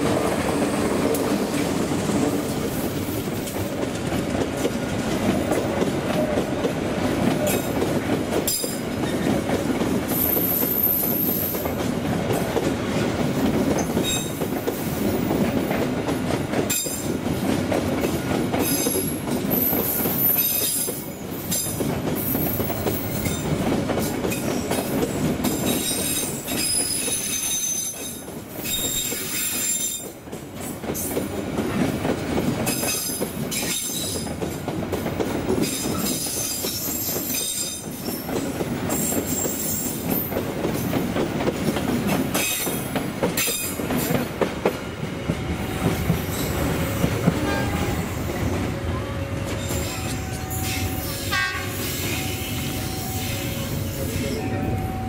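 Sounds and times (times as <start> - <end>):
train rolling rumble: 0.0 - 55.0
wheels clicking over rail joints: 11.4 - 47.8.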